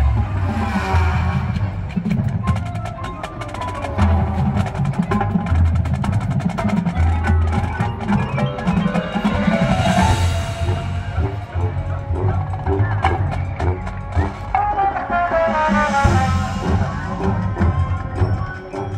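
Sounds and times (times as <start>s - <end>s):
marching drums and percussion: 0.0s - 18.9s
mallet instruments ringing: 2.7s - 14.0s, 16.1s - 18.9s.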